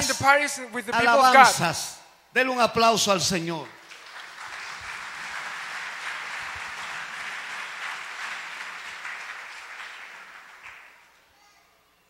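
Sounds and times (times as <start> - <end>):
crowd applauding: 3.6 - 11.3.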